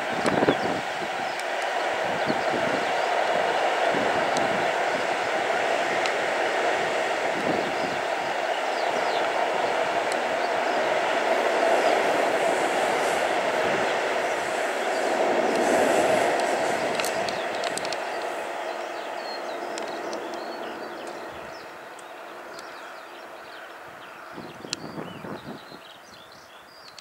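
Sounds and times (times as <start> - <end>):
train wheels rumbling on rails: 0.0 - 25.8
sharp clicks: 14.9 - 21.2.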